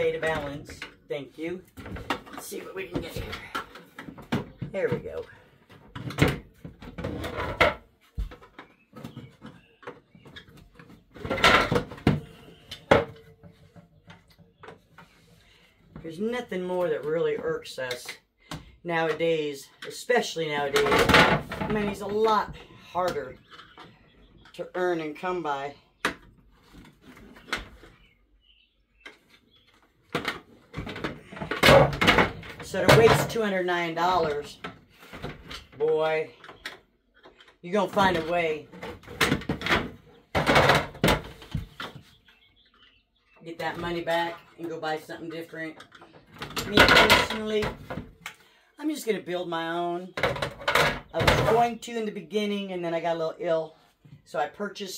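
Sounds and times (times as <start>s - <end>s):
plastic parts knocking: 1.7s - 15.2s, 20.7s - 24.6s, 29.0s - 35.8s, 36.4s - 42.1s, 45.7s - 48.3s, 50.2s - 51.7s.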